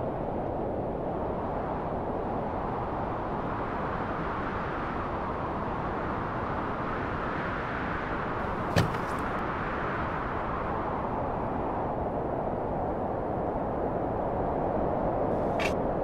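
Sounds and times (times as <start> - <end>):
rushing outdoor noise: 0.0 - 16.0
tailgate latch click: 8.8 - 9.2.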